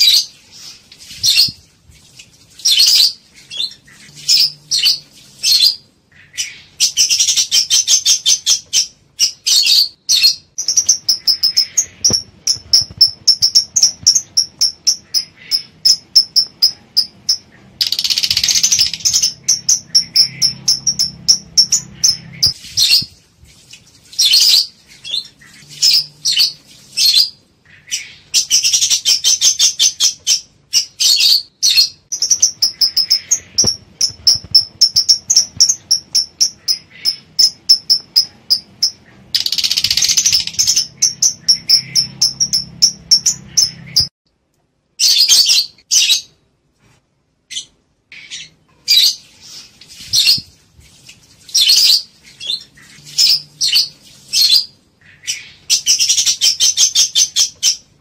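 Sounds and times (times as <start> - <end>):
birds chirping: 0.0 - 23.2, 24.0 - 44.1, 47.5 - 50.6, 51.4 - 58.0.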